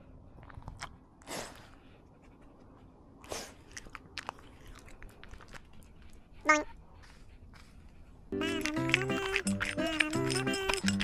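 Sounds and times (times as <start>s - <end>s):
dog crunching dry food: 8.4s - 11.0s.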